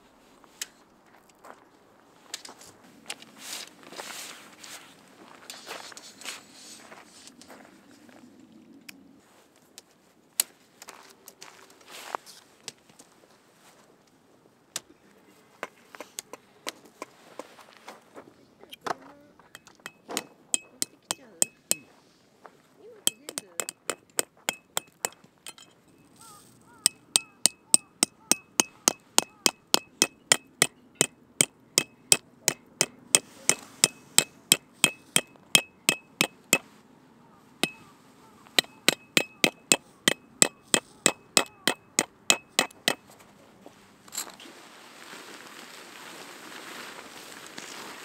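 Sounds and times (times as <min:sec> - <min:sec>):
hammer striking metal tent peg: 0:19.6 - 0:21.8, 0:23.1 - 0:25.7, 0:26.8 - 0:36.6, 0:37.6 - 0:37.8, 0:38.6 - 0:43.0
rustling: 0:37.6 - 0:48.0.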